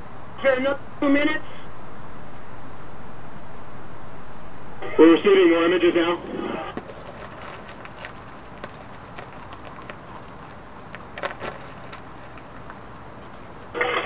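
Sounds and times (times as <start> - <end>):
control room background noise: 0.0 - 14.0
faint clicks and knocks: 6.8 - 13.7.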